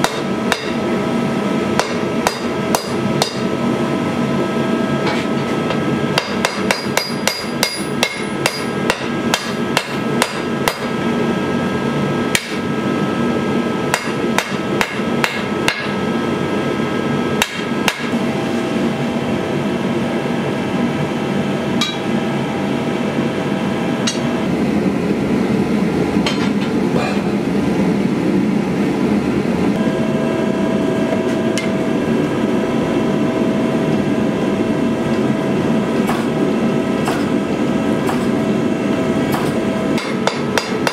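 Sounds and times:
hammer striking metal on anvil: 0.0s - 0.8s, 1.8s - 3.5s, 6.2s - 11.0s, 12.3s - 12.7s, 13.9s - 16.0s, 17.4s - 18.2s, 21.8s - 22.0s, 24.0s - 24.3s, 36.0s - 36.3s, 37.0s - 37.3s, 38.0s - 38.3s, 39.3s - 40.9s
gas forge rushing: 0.0s - 40.9s.

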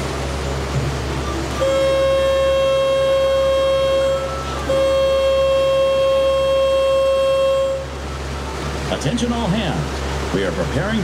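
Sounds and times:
boat engine drone: 0.0s - 11.0s
boat horn blasts: 1.2s - 8.9s.

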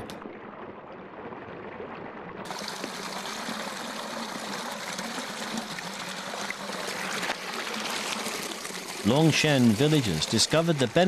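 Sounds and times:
water pouring and splashing: 0.0s - 11.0s.

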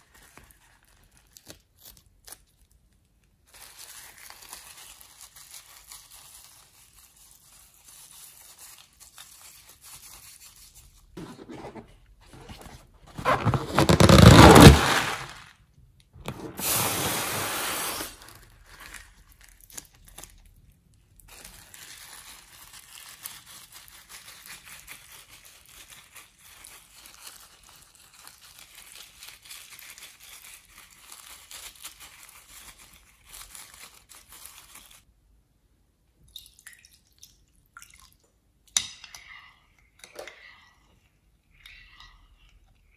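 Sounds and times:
slime crackling: 13.1s - 15.4s.

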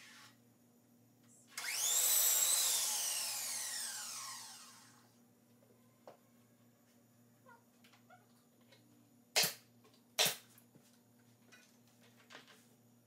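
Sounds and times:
miter saw cutting wood: 1.6s - 5.0s
saw blade winding down whine: 1.6s - 5.1s.

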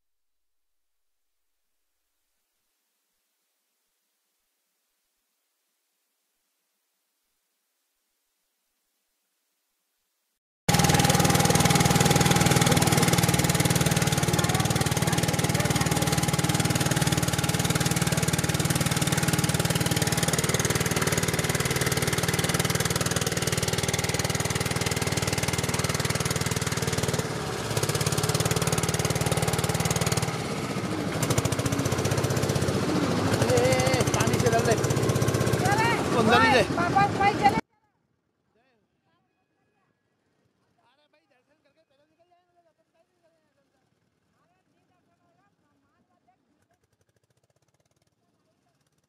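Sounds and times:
boat motor running: 10.7s - 37.6s.

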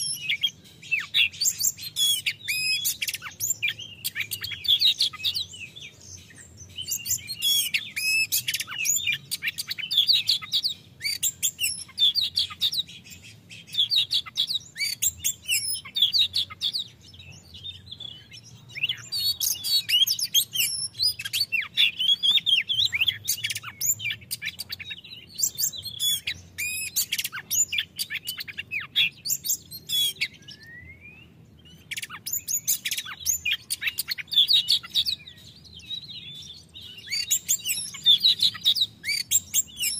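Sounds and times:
magpie-robin singing: 0.0s - 39.9s.

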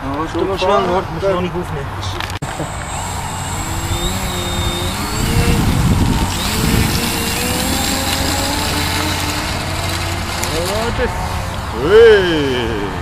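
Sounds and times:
model plane motor whining: 2.5s - 11.1s.

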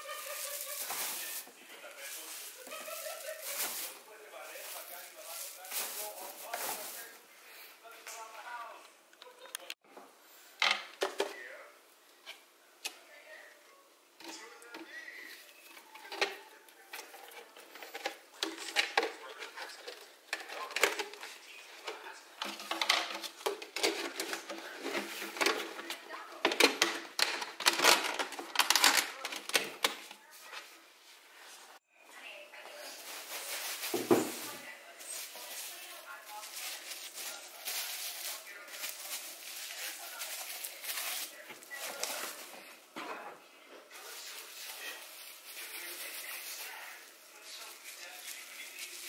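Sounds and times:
plastic wrapping crinkling: 0.0s - 7.2s, 33.0s - 42.7s, 43.9s - 49.0s.

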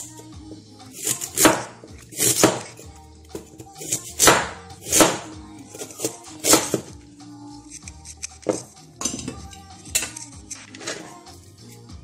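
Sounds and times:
background music: 0.0s - 12.0s
knife chopping on cutting board: 1.0s - 6.9s.

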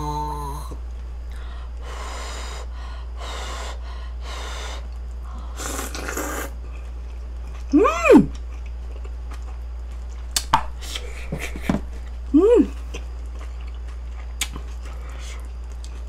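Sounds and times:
slurping broth: 5.6s - 6.6s.

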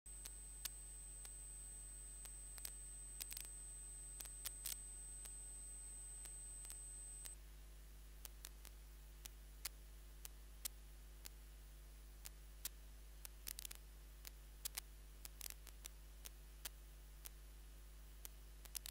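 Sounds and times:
thin high whine: 0.1s - 7.4s
faint electrical hum: 0.1s - 18.9s
sharp clicks: 2.2s - 5.4s.

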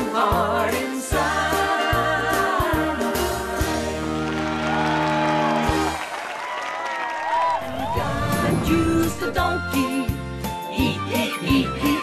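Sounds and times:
live band playing children's song: 0.0s - 6.1s.

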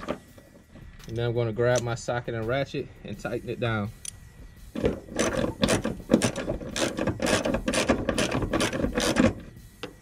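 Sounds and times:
socket ratchet clicking: 5.0s - 10.0s.

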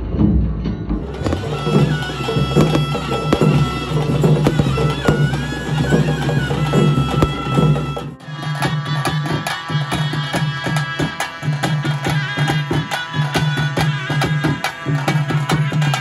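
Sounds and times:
low drone: 0.0s - 8.4s
drum strikes: 0.3s - 8.9s
reed pipe wavering melody: 1.0s - 16.0s.

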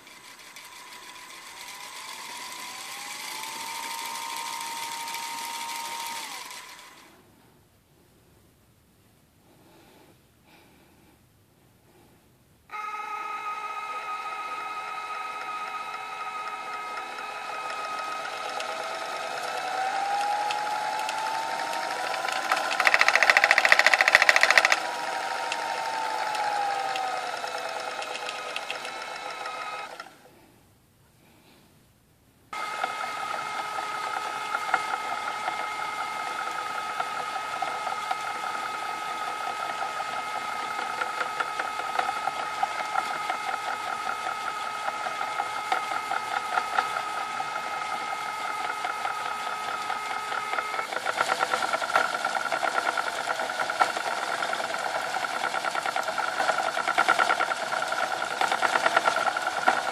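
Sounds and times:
spinning wheel motor whir: 0.0s - 7.2s, 12.7s - 30.3s, 32.5s - 59.9s
rattling clatter: 21.1s - 24.8s.

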